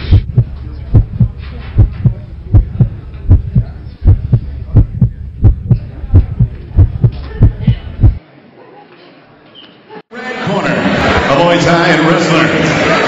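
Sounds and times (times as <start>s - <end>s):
heartbeat thumps: 0.0s - 8.2s.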